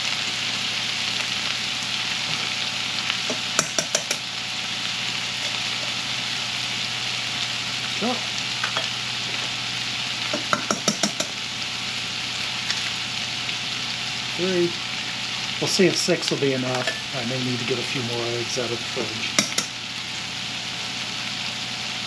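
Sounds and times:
food sizzling in frying pan: 0.0s - 22.0s
eggs tapped on steel bowl: 3.6s - 4.2s, 10.3s - 11.4s, 19.4s - 19.7s.

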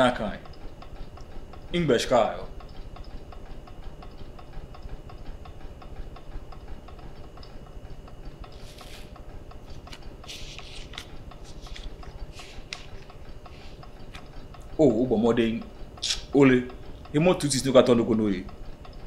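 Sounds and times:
clock ticking: 0.0s - 19.0s
banknotes rustling: 8.6s - 9.1s, 9.7s - 13.8s.

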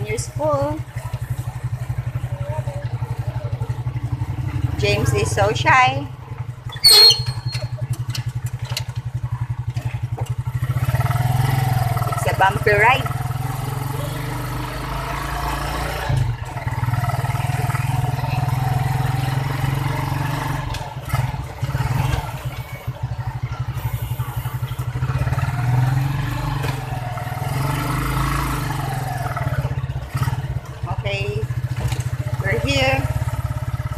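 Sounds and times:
vehicle engine running: 0.0s - 33.9s
vehicle body rattling: 0.4s - 13.5s, 28.6s - 33.9s.

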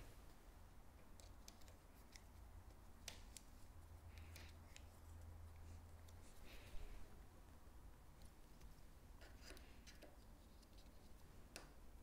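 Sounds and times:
small clicks and taps: 1.0s - 6.2s, 8.2s - 11.8s.

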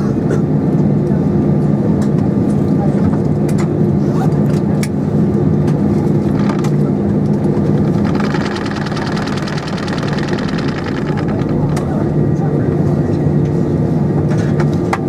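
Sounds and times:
light clicks and rattles: 6.3s - 6.8s, 7.8s - 12.5s
higher buzzing: 7.8s - 12.6s
aircraft engines low drone: 11.3s - 15.0s.

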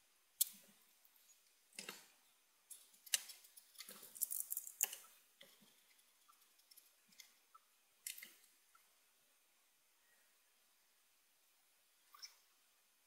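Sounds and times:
faint small clicks and taps: 2.7s - 7.4s, 8.0s - 8.9s.

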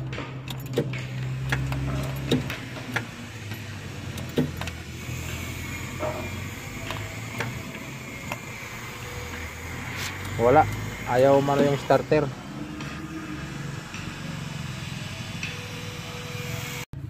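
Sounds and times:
ignition key clicking and rattling: 0.0s - 4.8s.

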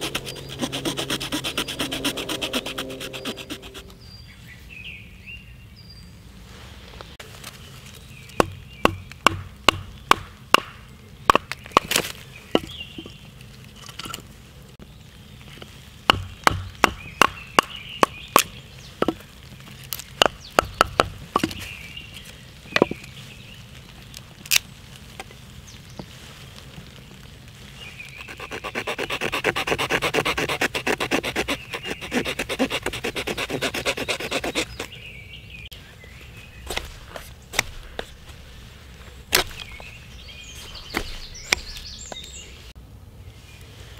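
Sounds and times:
knife scraping wood: 0.0s - 3.9s, 28.2s - 34.9s, 36.6s - 38.4s, 39.3s - 39.8s, 40.5s - 42.2s
hatchet chopping wood: 8.4s - 12.8s, 16.1s - 19.2s, 20.2s - 21.6s, 28.2s - 34.9s, 39.3s - 39.7s, 40.9s - 41.8s.

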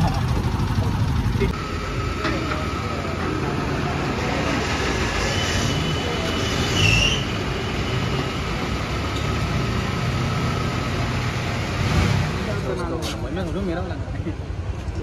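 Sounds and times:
fuel pump humming: 0.0s - 3.2s
brief high squeal: 4.7s - 7.9s.

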